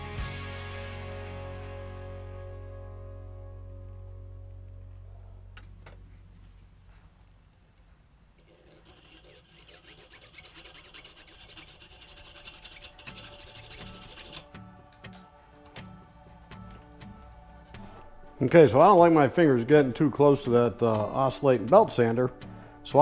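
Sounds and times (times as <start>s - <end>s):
background music: 0.0s - 6.1s, 10.4s - 23.0s
scratchy rubbing strokes: 8.4s - 14.6s.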